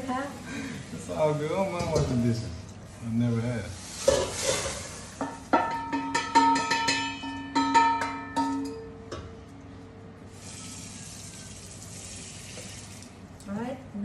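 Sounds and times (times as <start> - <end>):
metal cookware clanging: 1.7 - 2.5, 4.0 - 9.4.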